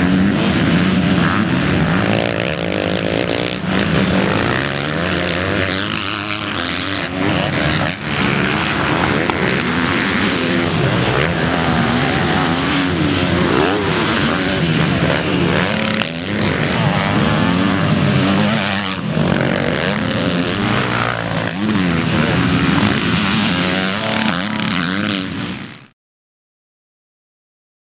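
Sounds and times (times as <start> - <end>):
dirt bikes revving: 0.0 - 25.9.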